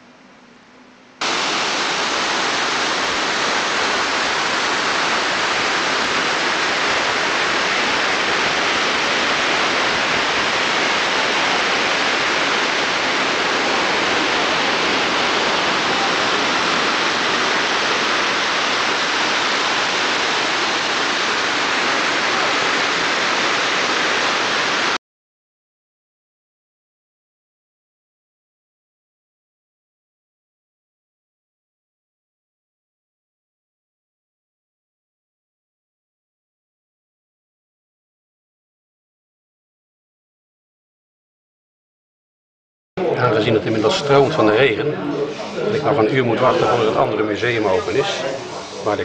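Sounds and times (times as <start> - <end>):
loud rush of water: 1.2 - 25.0, 43.1 - 49.0.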